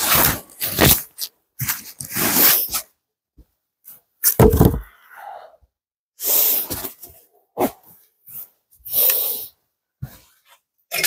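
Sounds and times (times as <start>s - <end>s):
log thudding onto wood: 4.4s - 4.9s.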